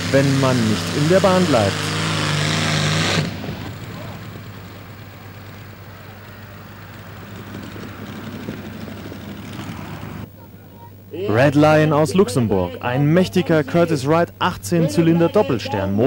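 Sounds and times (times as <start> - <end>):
aircraft engine running at full power: 0.0 - 10.3.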